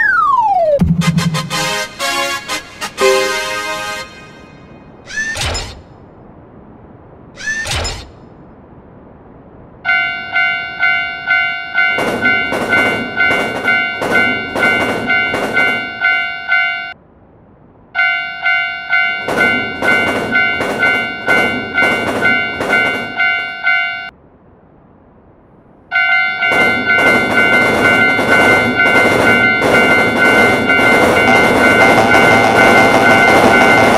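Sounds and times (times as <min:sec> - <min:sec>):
rhythmic clatter: 0:00.8 - 0:03.4, 0:19.2 - 0:23.5, 0:26.5 - 0:33.9
railroad crossing bell ringing: 0:03.0 - 0:04.8, 0:09.8 - 0:17.0, 0:18.0 - 0:24.2, 0:25.9 - 0:33.9.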